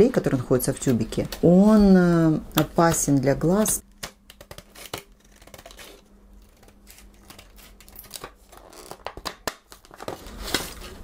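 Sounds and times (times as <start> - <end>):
scissors cutting plastic: 4.0 - 10.1
plastic packaging crinkling: 4.4 - 11.0.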